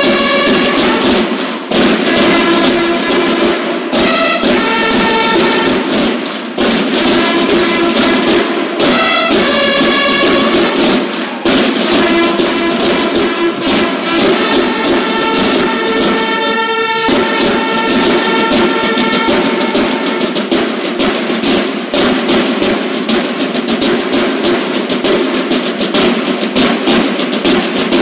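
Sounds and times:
short bugle notes: 0:00.0 - 0:06.1, 0:06.9 - 0:20.9
fast snare drumming: 0:00.0 - 0:28.0.

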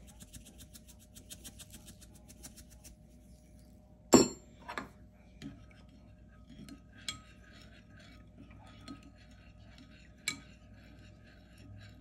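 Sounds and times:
clink on glass dish: 0:04.2 - 0:04.4.

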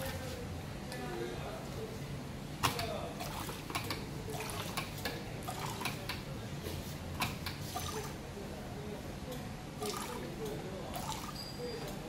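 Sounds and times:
liquid running: 0:03.2 - 0:06.1, 0:07.7 - 0:08.2, 0:09.8 - 0:11.5.

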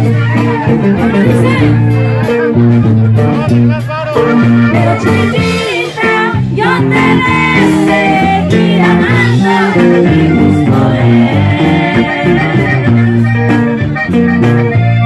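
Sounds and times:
live band with bass and guitar: 0:00.0 - 0:15.0
women singing: 0:04.8 - 0:13.2.

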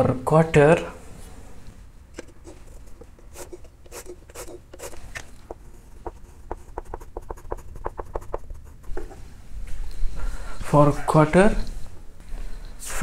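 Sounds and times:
chalk tapping on a chalkboard: 0:03.2 - 0:09.2.

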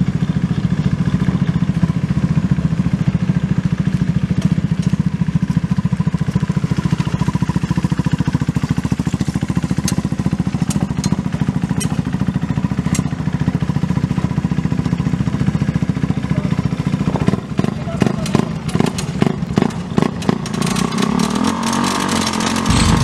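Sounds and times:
race car engine idling: 0:22.7 - 0:23.0.

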